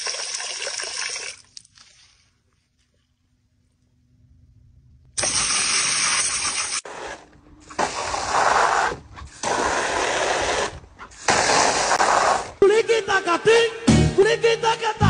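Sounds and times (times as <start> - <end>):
hose spraying into plastic pool: 5.2 - 12.6.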